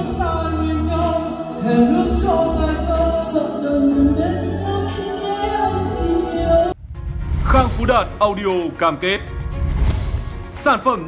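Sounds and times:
person singing karaoke: 0.0s - 6.8s.

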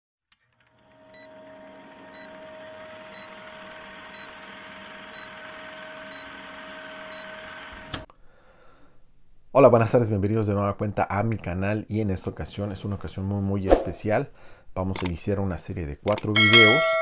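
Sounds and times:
film projector whirring clatter: 0.3s - 8.1s.

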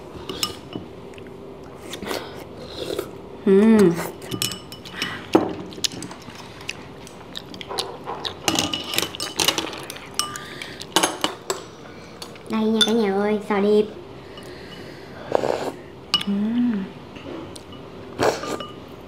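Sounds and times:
chopsticks and spoons clinking bowls: 0.2s - 0.9s, 4.2s - 6.2s, 7.8s - 13.2s, 17.2s - 18.8s
person humming: 16.2s - 17.0s.

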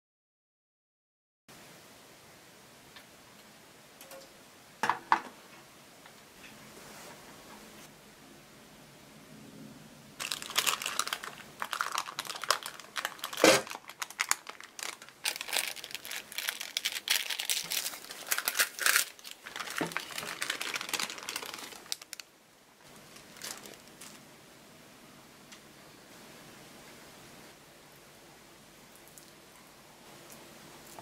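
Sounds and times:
baking paper crinkling and rustling: 10.2s - 24.3s.

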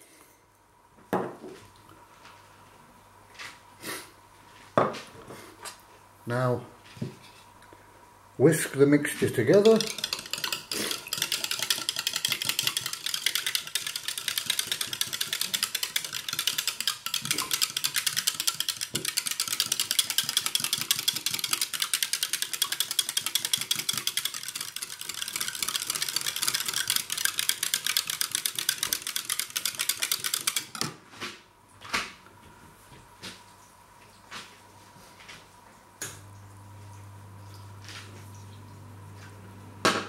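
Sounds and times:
whisk knocking in a jug: 9.1s - 30.9s
wire whisk clattering in a jug: 9.3s - 30.9s.

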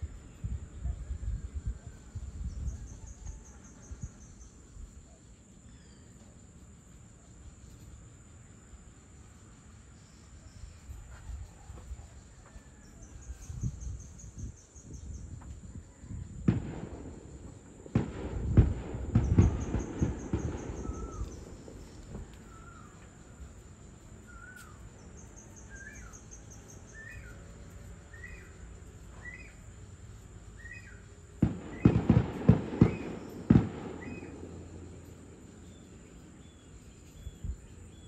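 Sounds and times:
sharp firework bangs: 16.3s - 22.6s, 31.4s - 35.3s
distant fireworks booming: 16.3s - 23.1s, 30.7s - 35.5s
birds chirping: 18.7s - 38.0s.

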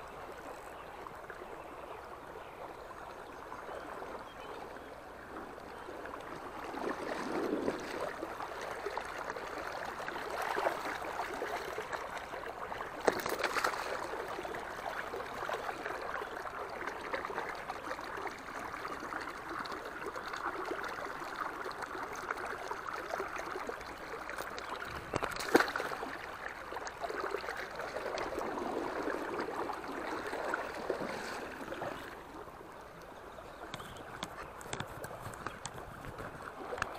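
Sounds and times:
river water rushing and splashing: 21.6s - 36.9s.

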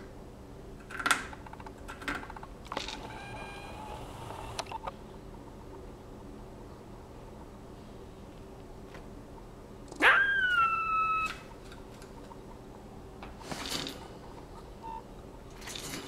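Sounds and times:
squirrel squealing: 10.0s - 11.5s.

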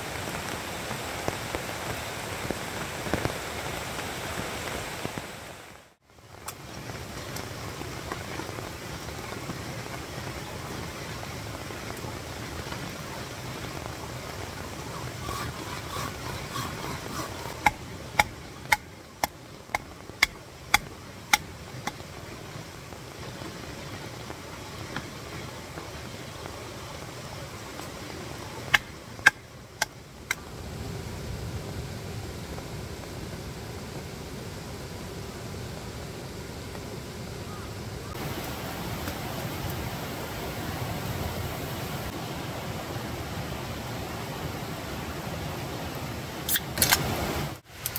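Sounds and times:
mountain stream rushing: 0.0s - 47.9s
rain: 0.0s - 47.9s.

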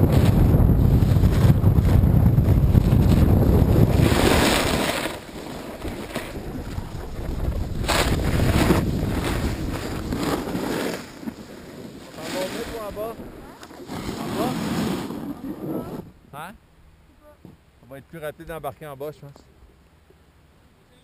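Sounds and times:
wind buffeting microphone: 0.0s - 4.8s, 5.8s - 10.5s
ski edges scraping packed snow: 0.0s - 16.1s.

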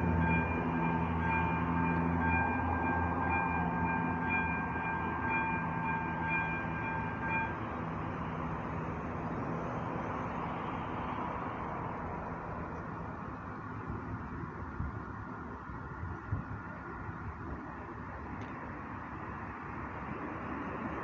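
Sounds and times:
level crossing warning bell: 0.0s - 16.0s
train rumbling: 0.0s - 21.0s.

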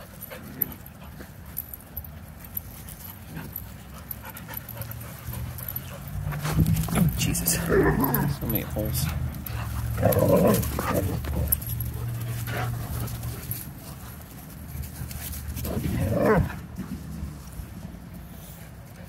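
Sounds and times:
puppies playing rough: 0.0s - 19.0s
dog vocal sounds: 3.1s - 13.5s, 15.5s - 16.8s.

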